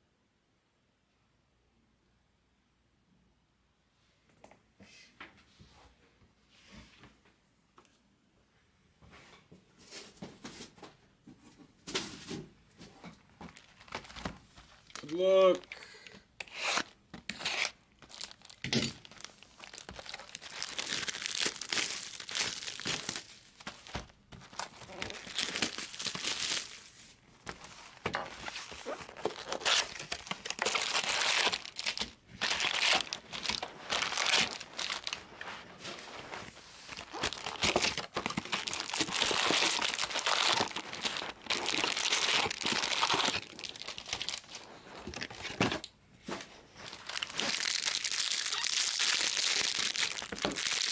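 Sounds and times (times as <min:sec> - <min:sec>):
foil wrappers crinkling: 0:13.4 - 0:15.7, 0:16.8 - 0:45.8, 0:46.8 - 0:50.9
wrapping tearing: 0:13.5 - 0:15.7, 0:16.5 - 0:45.6, 0:46.8 - 0:50.9.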